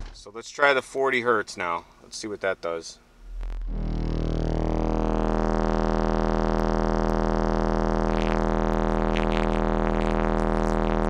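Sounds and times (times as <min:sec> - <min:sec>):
deep buzzy subwoofer drone: 0:00.0 - 0:00.3, 0:03.1 - 0:11.0.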